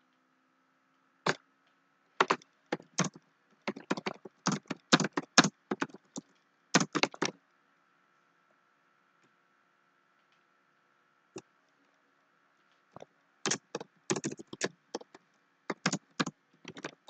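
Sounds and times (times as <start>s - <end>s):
keyboard typing clicks: 2.2s - 6.2s, 6.8s - 7.3s, 13.5s - 17.0s.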